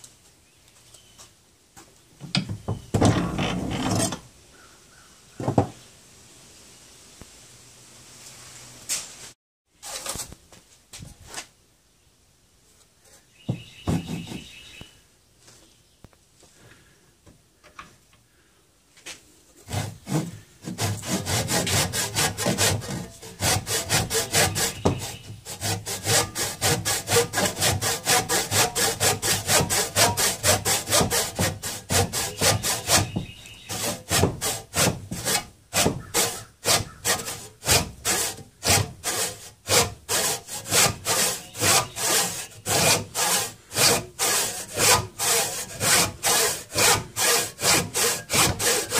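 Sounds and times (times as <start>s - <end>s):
handsaw cutting wood: 19.6s - 48.9s.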